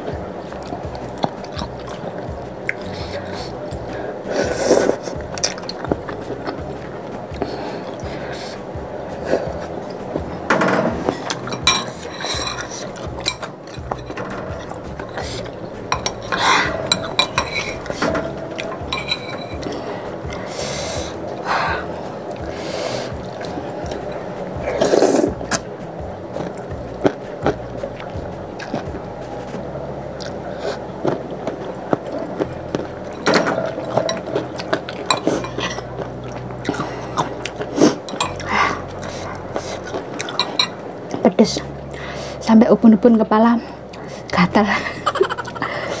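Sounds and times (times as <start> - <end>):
chewing: 0.0 - 42.4
loud mouth sounds: 0.0 - 42.4, 43.7 - 46.0
slurping noodles: 1.0 - 6.6, 11.0 - 25.6, 30.2 - 40.8
spoon and chopsticks clinking on bowl: 11.2 - 19.8, 33.2 - 36.1, 38.1 - 38.5, 40.2 - 40.8.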